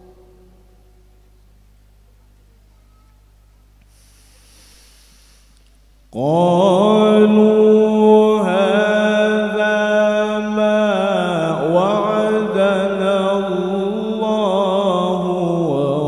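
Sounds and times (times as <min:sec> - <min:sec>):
man chanting melodically: 0:06.2 - 0:16.0.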